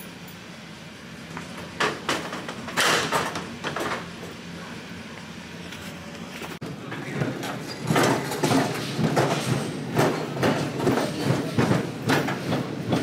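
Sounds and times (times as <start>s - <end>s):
cart rolling on hard floor: 6.4s - 13.0s
pipes rattling and knocking: 7.1s - 13.0s.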